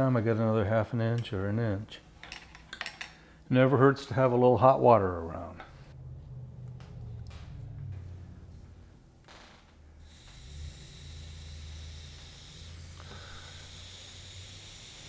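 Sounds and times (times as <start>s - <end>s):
water hissing into steam: 12.6s - 15.0s.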